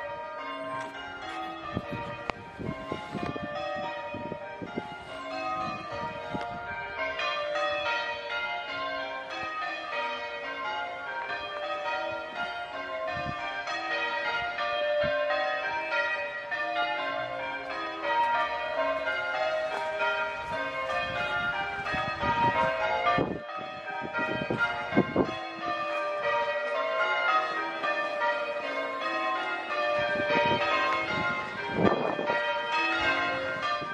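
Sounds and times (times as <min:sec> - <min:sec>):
church bells ringing: 0:00.0 - 0:33.9.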